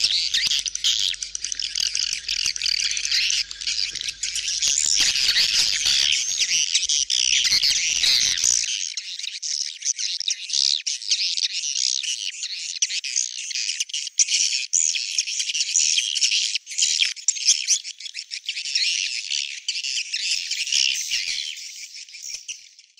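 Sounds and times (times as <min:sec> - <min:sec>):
swiftlets twittering chorus: 0:00.0 - 0:08.7.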